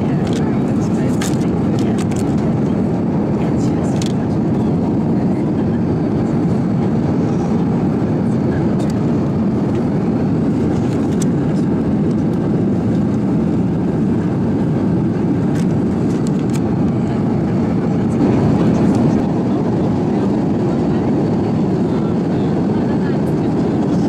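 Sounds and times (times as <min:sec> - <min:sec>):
airplane cabin engine rumble: 0:00.0 - 0:24.0.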